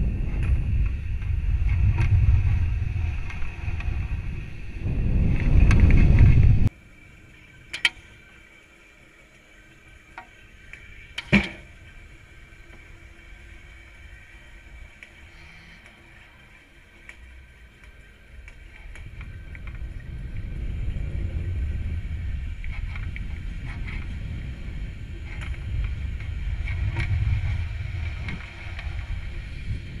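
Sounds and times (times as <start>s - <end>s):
low rocket rumble: 0.0s - 6.8s, 17.4s - 30.0s
scattered ticks: 14.4s - 29.4s.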